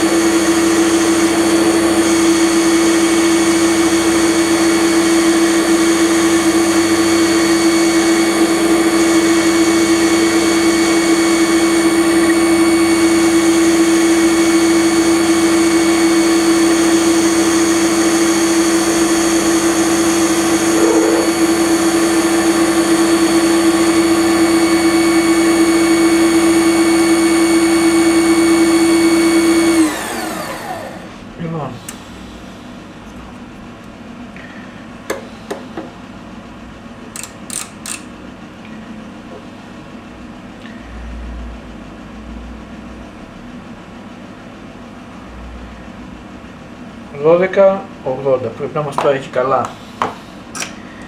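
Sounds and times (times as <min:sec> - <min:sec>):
metal lathe whining: 0:00.0 - 0:31.1.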